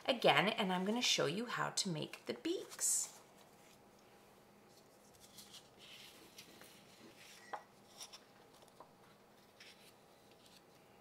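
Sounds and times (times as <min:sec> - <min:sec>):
paper rustling on a tabletop: 0:04.6 - 0:10.9.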